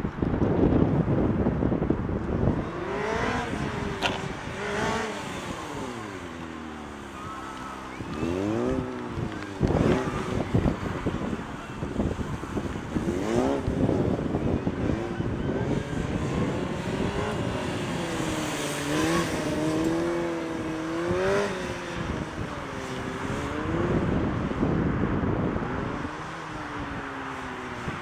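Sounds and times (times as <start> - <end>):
motorcycle engine revving: 2.4 - 24.4.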